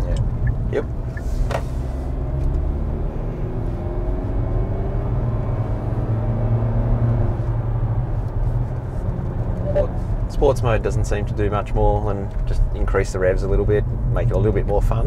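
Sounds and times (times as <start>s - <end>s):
car engine revving: 0.0s - 14.6s
low road rumble: 0.0s - 15.0s.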